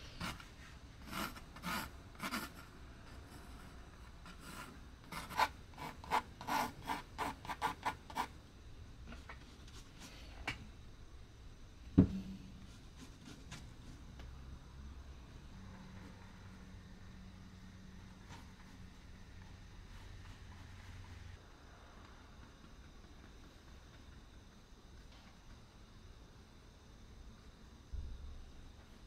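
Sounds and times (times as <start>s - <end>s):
pencil scratching on canvas: 0.1s - 8.3s
dull knock: 12.0s - 12.4s.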